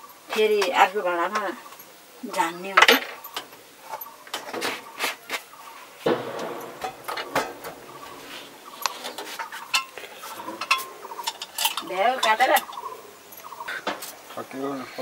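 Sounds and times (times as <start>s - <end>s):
metal utensils clinking: 6.2s - 13.0s.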